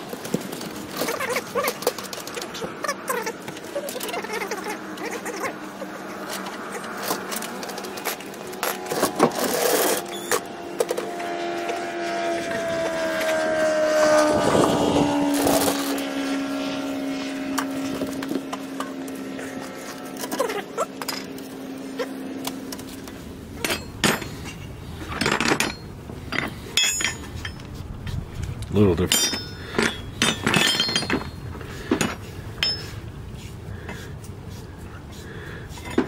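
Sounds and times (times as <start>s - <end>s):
engine drone: 0.0s - 36.0s
metal clanks and scrapes: 6.2s - 11.8s, 17.5s - 28.2s, 29.1s - 33.1s.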